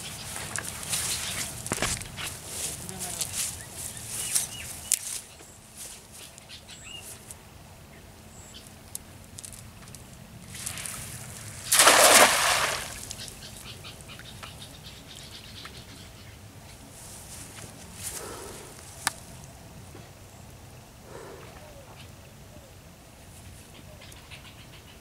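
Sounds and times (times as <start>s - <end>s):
cast net splashing on water: 10.5s - 13.3s.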